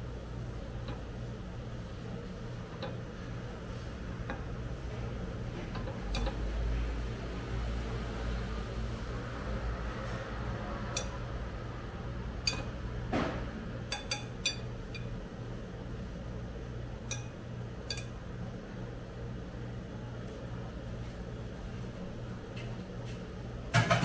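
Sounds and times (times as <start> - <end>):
steady low hum: 0.0 - 23.8
metal chopsticks clinking on plate: 12.5 - 12.7, 13.9 - 15.1, 17.1 - 18.1.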